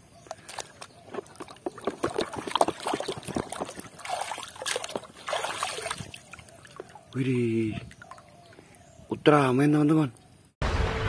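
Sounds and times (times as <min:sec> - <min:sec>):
water sloshing and splashing: 0:00.3 - 0:08.8
water trickling: 0:01.1 - 0:08.8.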